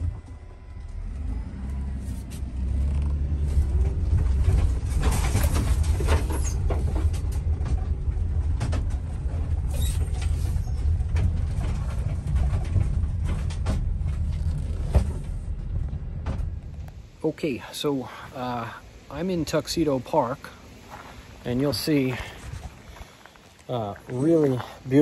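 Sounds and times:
van engine rumble: 0:00.0 - 0:19.2
road noise hiss: 0:13.2 - 0:25.0.

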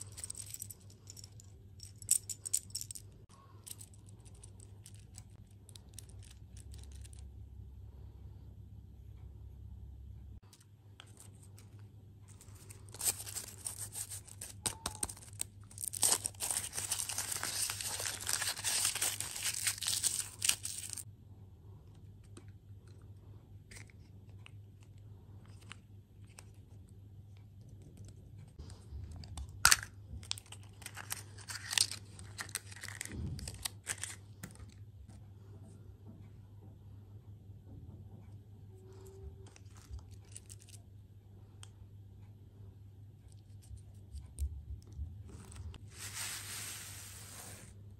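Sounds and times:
foil wrapper crinkling and tearing: 0:12.5 - 0:21.0, 0:29.6 - 0:34.2.

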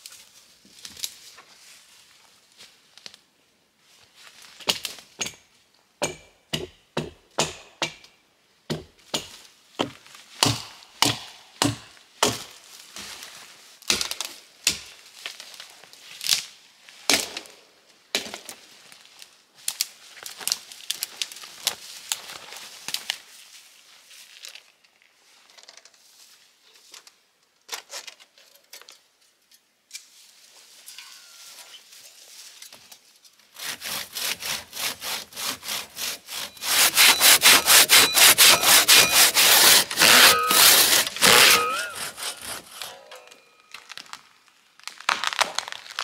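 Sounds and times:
wood being chopped: 0:06.0 - 0:08.0, 0:08.7 - 0:12.5, 0:33.6 - 0:43.0.

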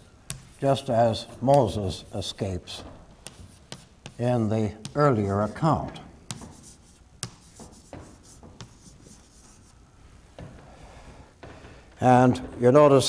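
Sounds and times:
chalk tapping on board: 0:00.3 - 0:00.8, 0:02.8 - 0:09.7
chalk scratching on chalkboard: 0:03.2 - 0:09.8.

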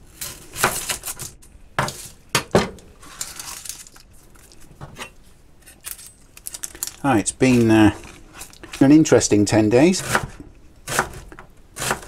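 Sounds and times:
onion skin rustling: 0:02.9 - 0:12.0.

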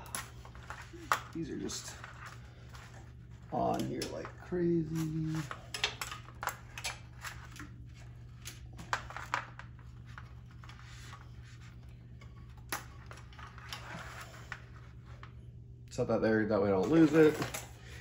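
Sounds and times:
clicks and rustles of wiring: 0:00.0 - 0:16.0, 0:16.7 - 0:18.0
steady low hum: 0:00.0 - 0:18.0.

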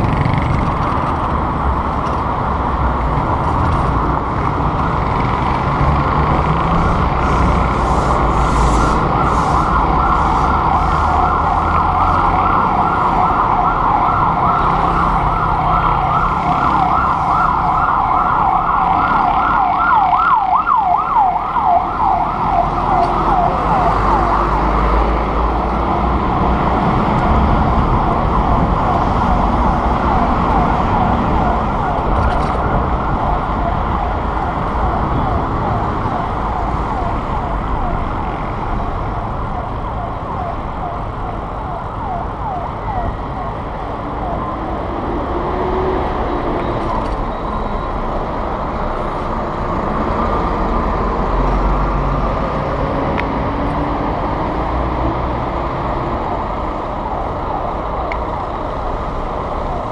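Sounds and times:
wind noise on microphone: 0:00.0 - 0:11.1, 0:26.2 - 0:37.3
city traffic rumble: 0:00.0 - 0:59.9
emergency siren wailing: 0:06.6 - 0:59.9.

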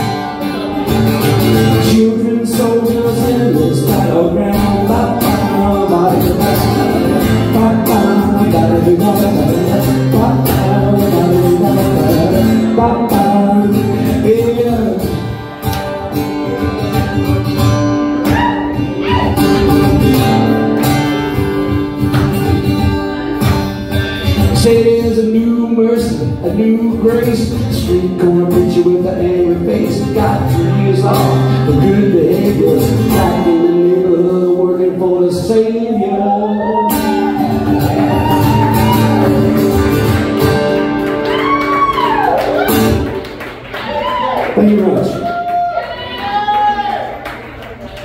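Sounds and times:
man singing: 0:00.0 - 0:15.6, 0:18.3 - 0:20.6, 0:24.2 - 0:39.6
strummed acoustic guitar: 0:00.0 - 0:41.8.

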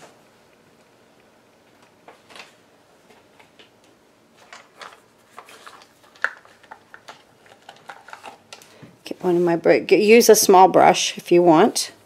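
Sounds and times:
craft supplies clicking and rustling: 0:04.4 - 0:08.8.

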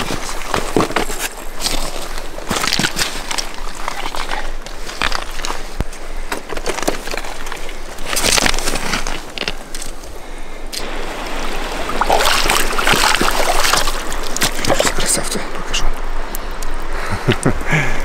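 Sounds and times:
river water running and splashing: 0:00.0 - 0:06.2, 0:10.2 - 0:16.9.

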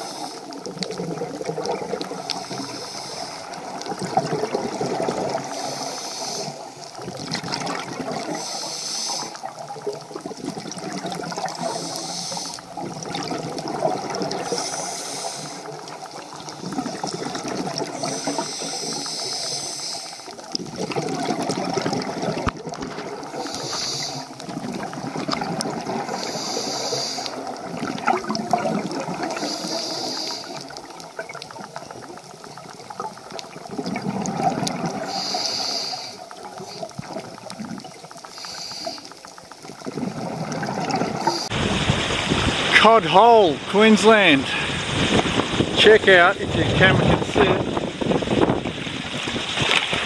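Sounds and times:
hissing breath through breathing gear: 0:00.0 - 0:00.5, 0:02.5 - 0:03.6, 0:05.5 - 0:06.8, 0:08.3 - 0:09.4, 0:11.6 - 0:12.7, 0:14.5 - 0:15.7, 0:18.0 - 0:20.3, 0:23.4 - 0:24.4, 0:26.1 - 0:27.4, 0:29.3 - 0:30.7, 0:35.0 - 0:36.9, 0:38.2 - 0:39.3
underwater water noise: 0:00.0 - 0:50.0.

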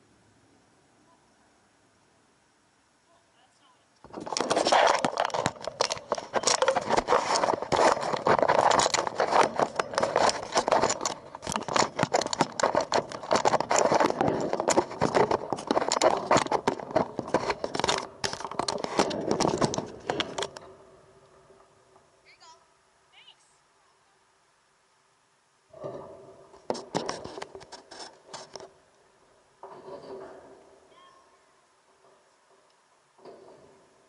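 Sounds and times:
camera scraping against fence: 0:04.0 - 0:20.7, 0:25.8 - 0:28.8, 0:29.6 - 0:30.9.

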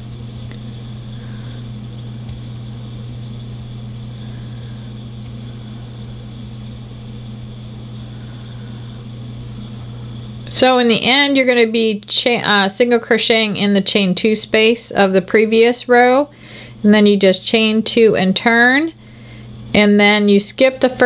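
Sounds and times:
faint high whine: 0:00.0 - 0:13.0
low background hum: 0:00.0 - 0:21.0.

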